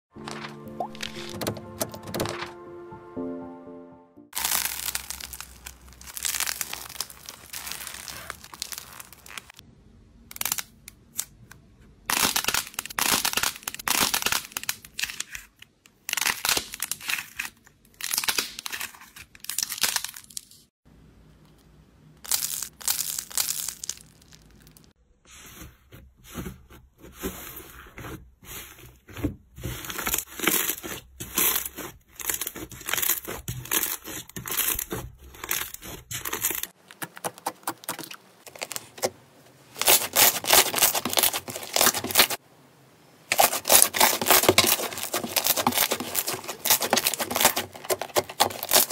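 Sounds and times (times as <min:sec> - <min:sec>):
squishy toys crackling and crunching: 0:04.4 - 0:09.6, 0:12.0 - 0:20.7, 0:22.2 - 0:25.0, 0:29.0 - 0:42.4, 0:43.3 - 0:48.9.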